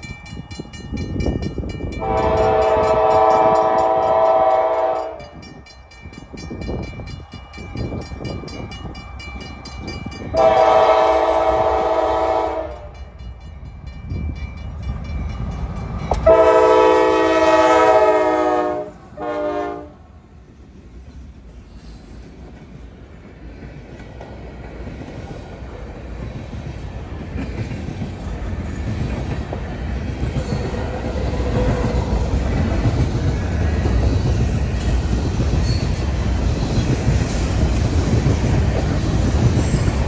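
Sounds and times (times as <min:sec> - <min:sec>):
crossing bell ringing: 0:00.0 - 0:18.6, 0:33.9 - 0:36.8
diesel train rumble: 0:00.0 - 0:40.0
locomotive air horn blasts: 0:02.0 - 0:05.4, 0:10.3 - 0:13.0, 0:16.2 - 0:20.0.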